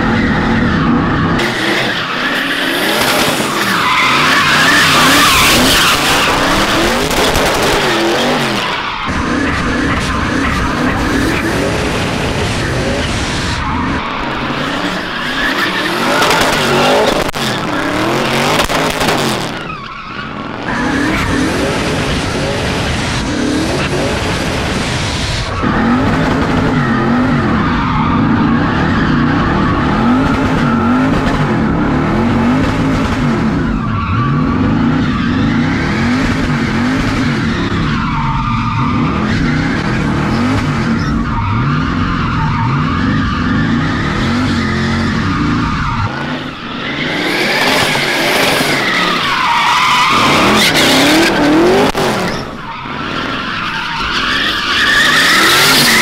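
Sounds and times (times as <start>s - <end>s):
car engine revving: 0.0s - 56.0s
tyres squealing and skidding: 0.0s - 56.0s.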